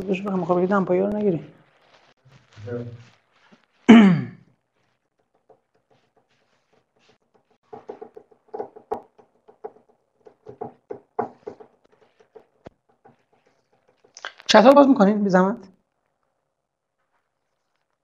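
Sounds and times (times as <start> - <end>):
marker writing on a whiteboard: 4.8 - 14.2.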